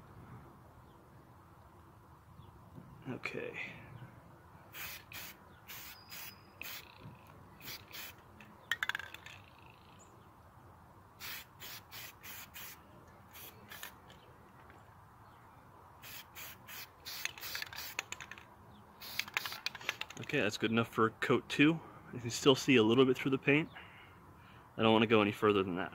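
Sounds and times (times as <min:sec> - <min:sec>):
aerosol spray can hissing: 0:04.8 - 0:07.0, 0:07.6 - 0:08.2, 0:11.2 - 0:14.0, 0:16.0 - 0:18.1, 0:19.0 - 0:20.1.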